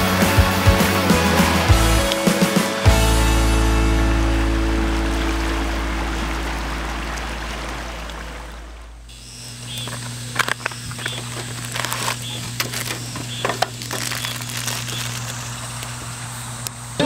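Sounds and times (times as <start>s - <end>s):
background music: 0.0s - 8.8s
objects being handled: 9.8s - 16.0s.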